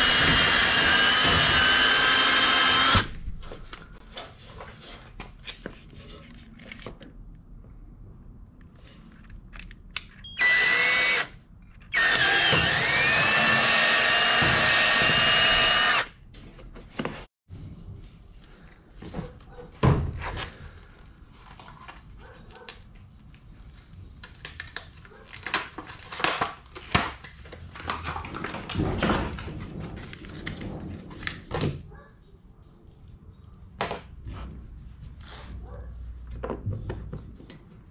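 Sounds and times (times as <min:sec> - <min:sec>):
cordless drill motor whine: 0:00.0 - 0:03.1, 0:10.3 - 0:11.3, 0:11.9 - 0:16.1.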